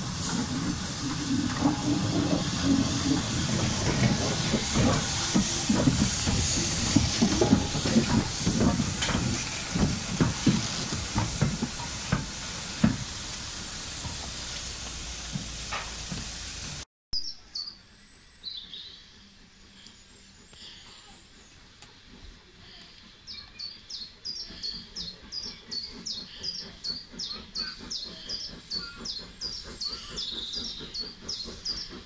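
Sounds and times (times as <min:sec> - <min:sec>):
hiss of steam: 0:00.0 - 0:16.8, 0:17.6 - 0:32.0
faint birdsong: 0:17.2 - 0:21.6, 0:22.6 - 0:32.0.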